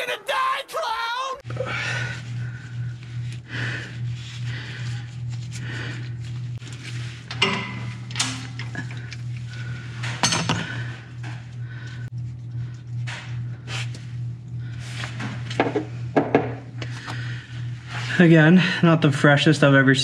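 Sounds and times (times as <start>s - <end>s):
steady low hum: 1.4s - 20.0s.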